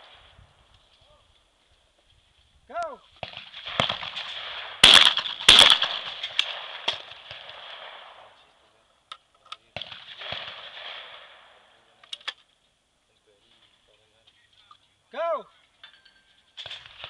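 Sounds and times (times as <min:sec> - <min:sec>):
shotgun shots with echo: 0:03.2 - 0:08.4, 0:09.7 - 0:11.8.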